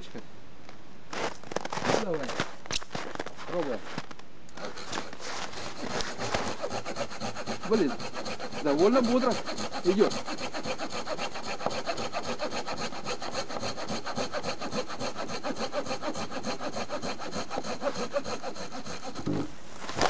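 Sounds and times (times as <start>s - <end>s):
hand saw cutting wood: 4.6s - 19.4s.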